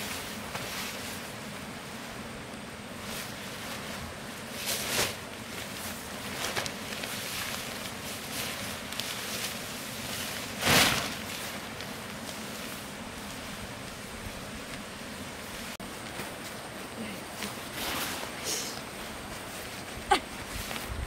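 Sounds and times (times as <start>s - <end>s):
tarp rustling and swishing: 0.0s - 2.2s, 2.8s - 21.0s.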